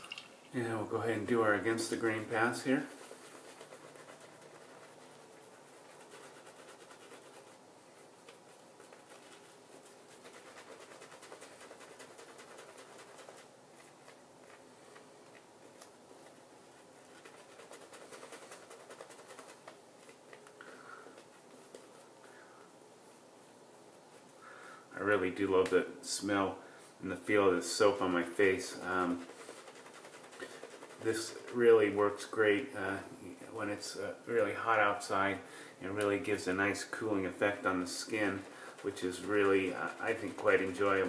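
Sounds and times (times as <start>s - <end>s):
shaving brush swishing on skin: 1.1s - 20.4s, 27.7s - 32.7s, 35.8s - 41.0s.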